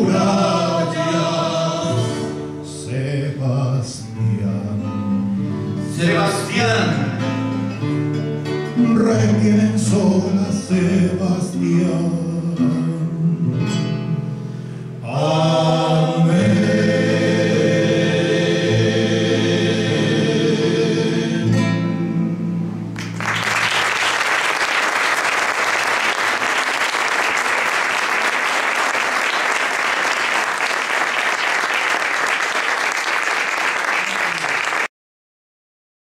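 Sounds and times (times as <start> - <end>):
man singing: 0.0 - 5.2, 5.9 - 7.2, 8.8 - 14.2
musical accompaniment: 0.0 - 34.8
audience applauding: 23.0 - 34.9.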